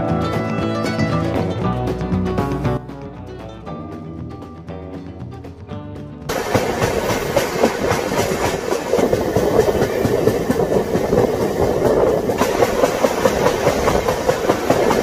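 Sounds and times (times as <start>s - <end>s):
rapid clickety-clack: 6.3s - 15.0s
train wheels rumbling on rail: 6.3s - 15.0s.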